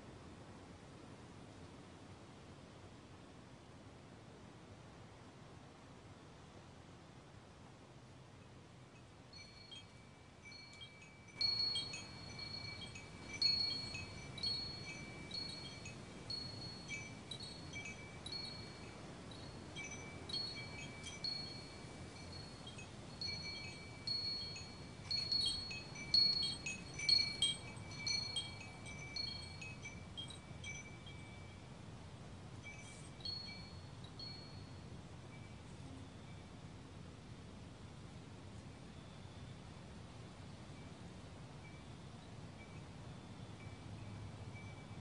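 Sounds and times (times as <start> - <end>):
faint low hiss: 0.0 - 45.0
wind chimes ringing: 9.0 - 31.8, 32.6 - 36.4, 42.6 - 45.0.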